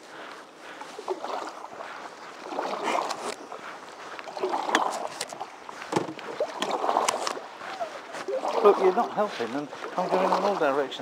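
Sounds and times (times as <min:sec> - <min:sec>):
canoe paddles dipping in water: 0:00.0 - 0:11.0
paddle knocking against boat: 0:04.5 - 0:07.4.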